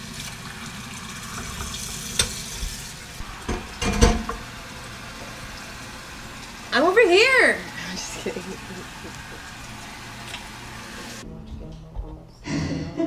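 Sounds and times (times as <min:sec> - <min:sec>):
kitchen clicks and knocks: 0:03.4 - 0:04.4.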